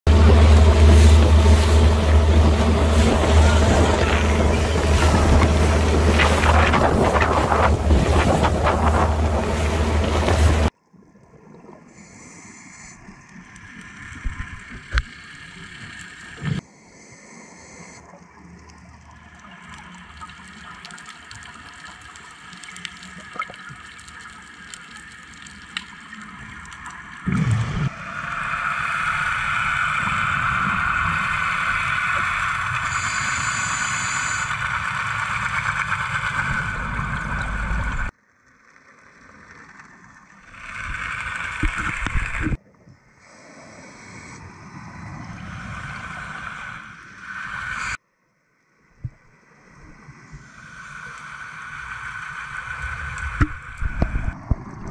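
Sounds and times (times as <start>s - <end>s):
loud steady rushing noise: 0.1s - 10.7s
muffled underwater noise: 0.1s - 10.7s, 26.0s - 38.1s.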